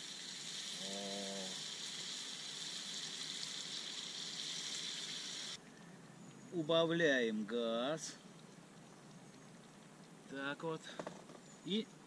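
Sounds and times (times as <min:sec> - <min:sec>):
pot sizzling: 0:00.0 - 0:05.6
water pouring: 0:01.6 - 0:05.8.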